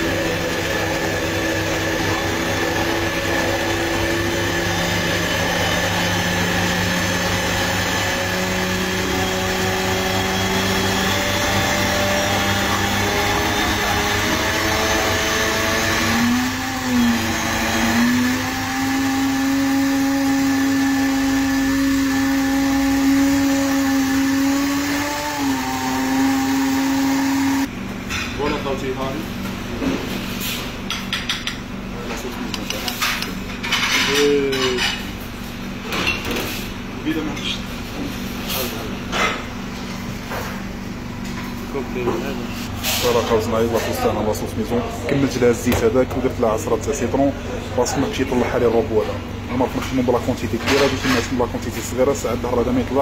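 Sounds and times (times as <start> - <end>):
blender motor running: 0.0 - 27.7.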